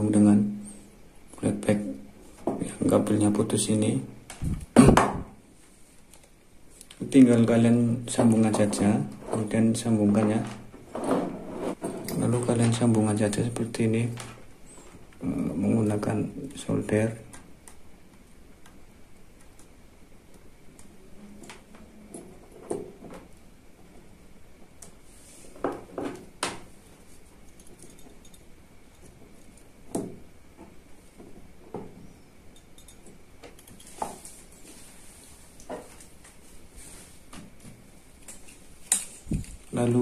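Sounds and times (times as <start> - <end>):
tools clicking and knocking on bench: 27.5 - 34.2.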